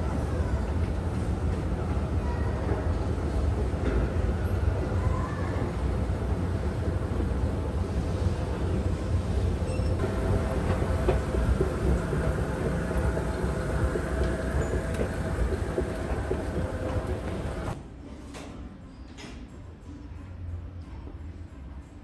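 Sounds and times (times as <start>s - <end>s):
escalator mechanical rumble: 5.7s - 17.8s
faint motor hum: 9.1s - 17.8s.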